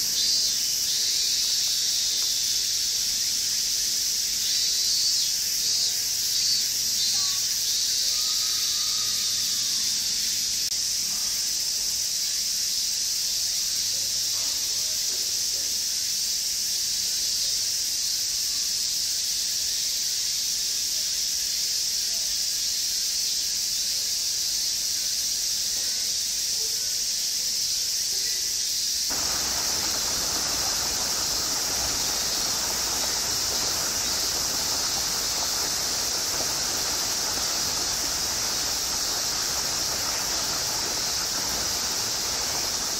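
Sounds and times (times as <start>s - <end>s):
cicadas droning: 0.0s - 42.9s
broad rushing noise: 29.1s - 42.9s.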